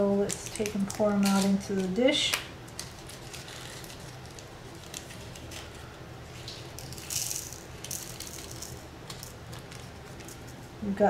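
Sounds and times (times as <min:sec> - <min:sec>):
small crystals rattling into a dish: 0:06.6 - 0:10.4.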